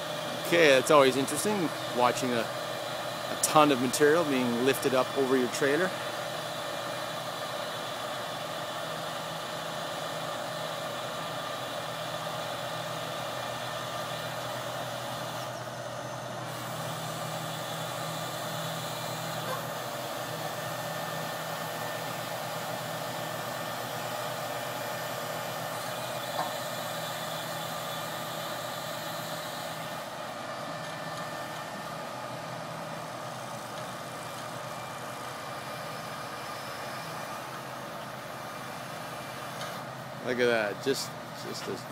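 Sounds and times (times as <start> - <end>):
diesel engine running: 0.0 - 41.9.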